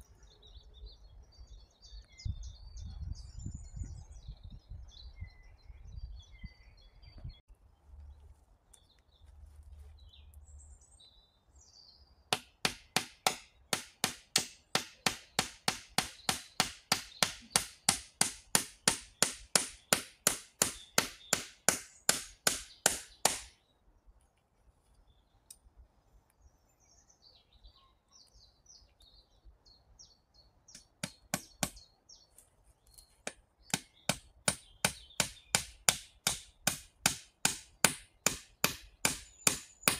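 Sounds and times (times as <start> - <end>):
birds chirping: 0.0 - 39.9
hand tool striking wood: 12.3 - 23.6, 30.7 - 31.8, 33.2 - 39.9.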